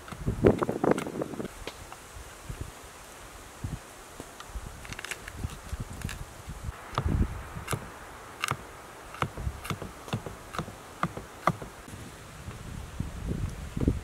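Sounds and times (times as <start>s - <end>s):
knife chopping on wooden board: 9.2s - 11.7s.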